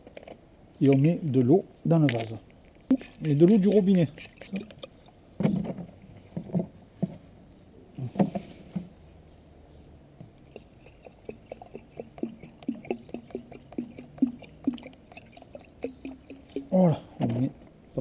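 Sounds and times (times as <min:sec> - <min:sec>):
water glugging from a jug: 0:02.9 - 0:06.8, 0:10.5 - 0:17.6.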